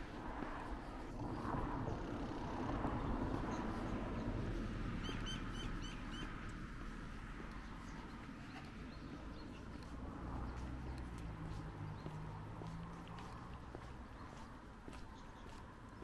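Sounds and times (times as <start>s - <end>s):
distant traffic hum: 0.0s - 16.0s
small bird chirping: 3.5s - 6.4s.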